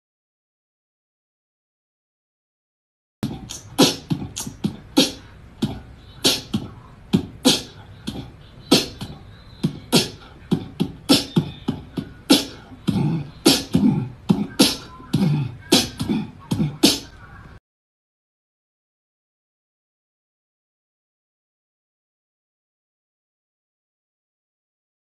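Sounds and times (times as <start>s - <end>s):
beatboxing kick and snare: 3.2s - 17.1s.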